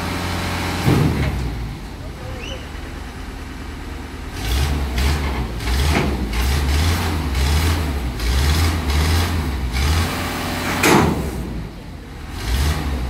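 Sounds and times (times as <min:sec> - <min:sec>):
heavy diesel truck engine rumbling: 0:00.0 - 0:13.0.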